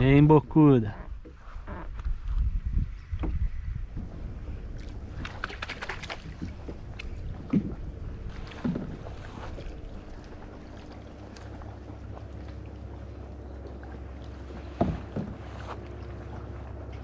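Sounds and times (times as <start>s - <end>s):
low wind rumble on microphone: 0.0s - 17.0s
paddle strokes splashing: 1.1s - 17.0s
dull knocks: 8.5s - 9.2s, 14.7s - 15.8s.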